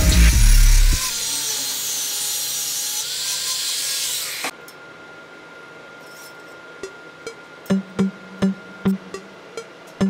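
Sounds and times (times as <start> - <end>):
angle grinder cutting metal tube: 0.0 - 4.5
faint steady hum: 4.6 - 10.0.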